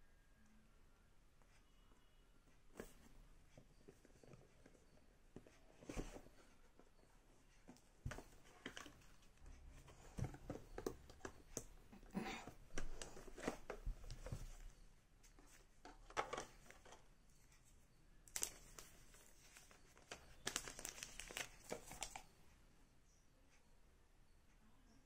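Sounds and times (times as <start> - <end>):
cardboard rustling: 3.9 - 6.9, 7.6 - 17.0, 18.3 - 22.3.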